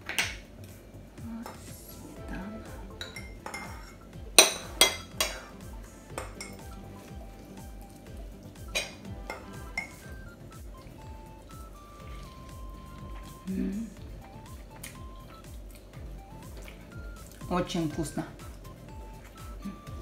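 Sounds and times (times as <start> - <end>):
teaspoon clinking on plate: 3.0 - 5.4, 6.2 - 6.7, 8.8 - 10.1.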